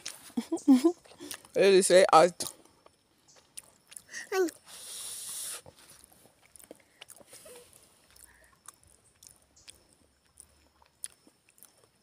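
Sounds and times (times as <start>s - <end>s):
child chewing crisp cake: 0.0s - 1.6s, 2.4s - 12.0s.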